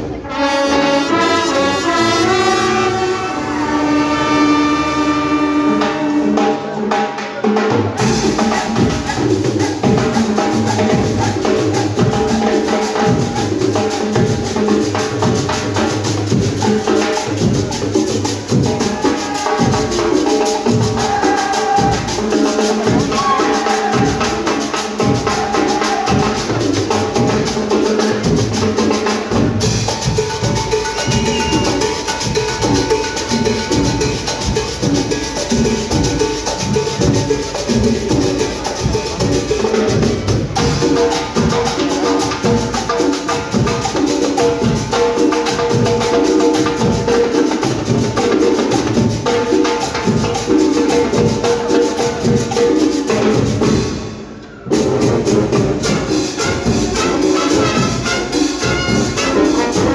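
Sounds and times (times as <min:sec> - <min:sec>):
trumpets and trombones playing: 0:00.0 - 0:07.0, 0:10.5 - 0:48.0, 0:54.7 - 0:59.9
drums and hand percussion: 0:00.0 - 0:59.9
held brass chord: 0:00.1 - 0:06.6, 0:55.8 - 0:59.9.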